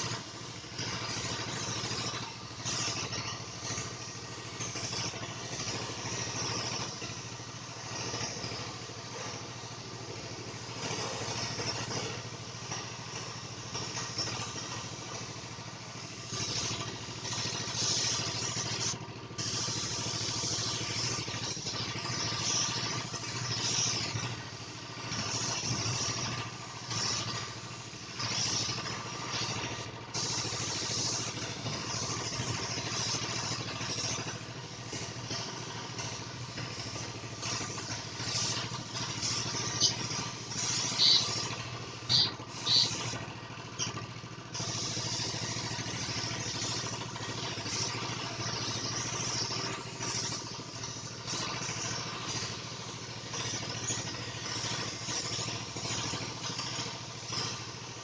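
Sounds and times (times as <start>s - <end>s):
hiss: 0.0s - 58.0s
motor running steadily: 0.0s - 58.0s.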